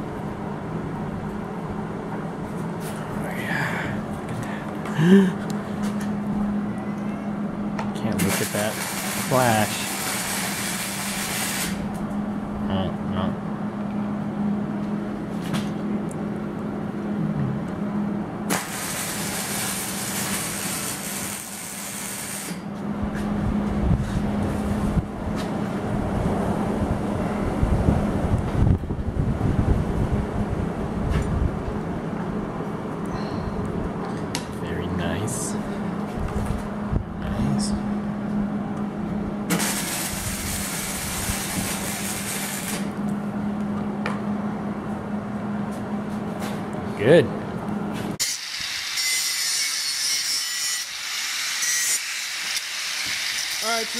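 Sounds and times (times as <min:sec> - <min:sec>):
steady low hum: 0:00.0 - 0:48.2
welding arc crackling and hissing: 0:08.0 - 0:12.0, 0:18.5 - 0:22.7, 0:39.5 - 0:43.0, 0:48.2 - 0:53.9.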